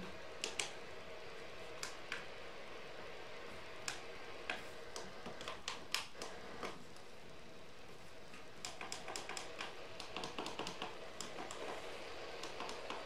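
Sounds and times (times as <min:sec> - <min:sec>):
faint irregular clicks and taps: 0:00.0 - 0:00.8, 0:01.7 - 0:02.3, 0:03.8 - 0:07.1, 0:08.2 - 0:13.0
faint hum: 0:00.0 - 0:13.0
low steady hiss: 0:00.0 - 0:13.0.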